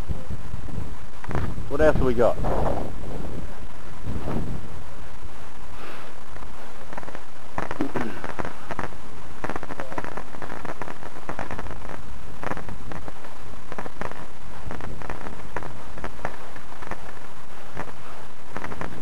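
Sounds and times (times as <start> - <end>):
wind rumble on microphone: 0.0 - 8.9.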